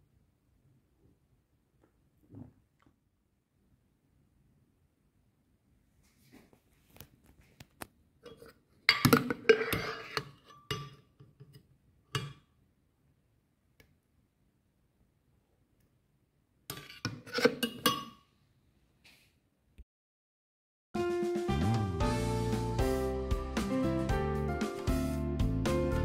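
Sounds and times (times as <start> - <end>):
metal spoon scraping glass jar: 9.2 - 11.0, 16.7 - 18.1.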